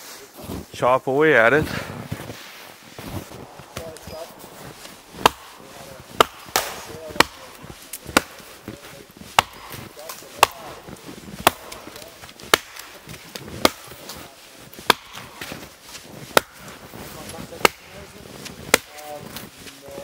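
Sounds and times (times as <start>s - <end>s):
axe chopping wood: 4.7s - 15.7s, 16.3s - 16.8s, 17.6s - 18.0s, 18.6s - 19.1s.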